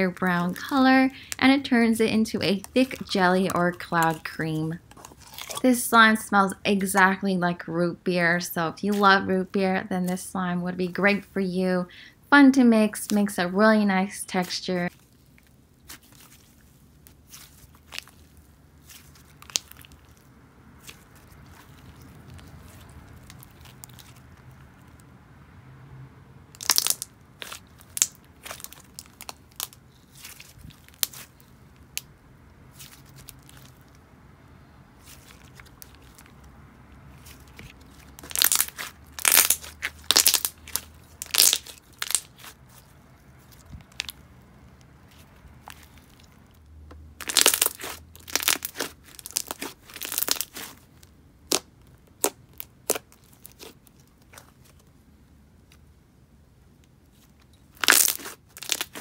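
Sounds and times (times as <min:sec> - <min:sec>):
slime clicking and popping: 0:26.6 - 0:29.8, 0:38.2 - 0:42.5, 0:47.2 - 0:50.8, 0:51.5 - 0:53.7, 0:57.8 - 0:59.0.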